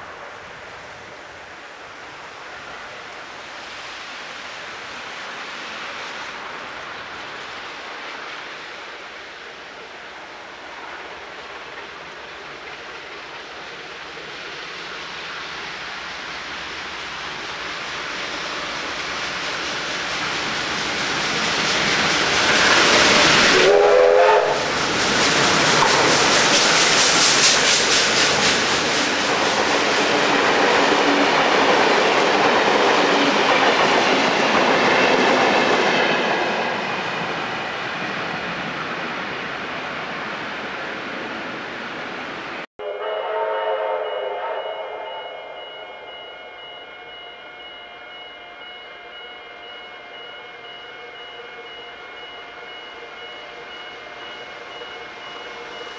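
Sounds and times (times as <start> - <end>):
train rushing and clattering on rails: 0.0 - 42.7, 44.0 - 55.9
steam train whistle: 22.2 - 28.8, 42.8 - 55.9.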